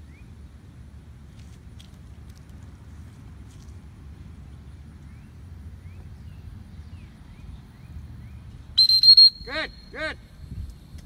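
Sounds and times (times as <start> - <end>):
low steady rumble: 0.0 - 11.0
high steady whistle: 8.8 - 10.0.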